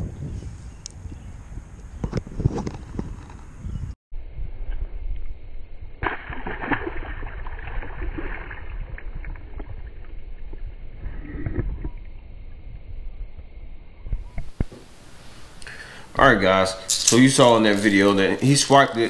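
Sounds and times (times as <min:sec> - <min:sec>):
fish splashing into water: 0:06.0 - 0:10.6.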